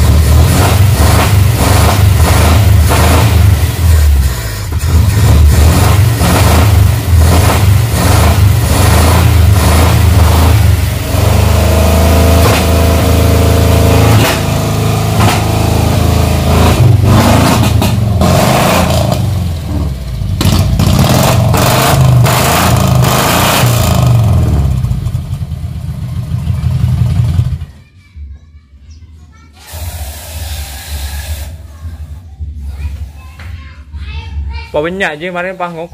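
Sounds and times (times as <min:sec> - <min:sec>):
car engine revving unevenly: 0:00.0 - 0:24.9
exhaust pops: 0:12.3 - 0:12.8, 0:15.1 - 0:15.6, 0:16.6 - 0:21.6.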